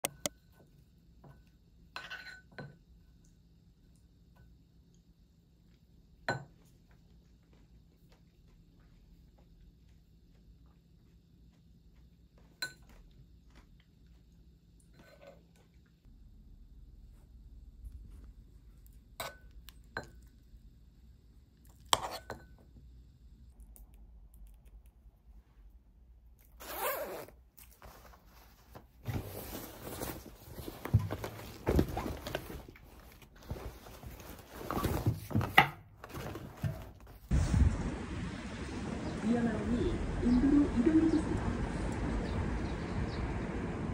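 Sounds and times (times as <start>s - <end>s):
zipper pull: 26.6s - 27.4s
clothes rustling: 26.6s - 37.3s.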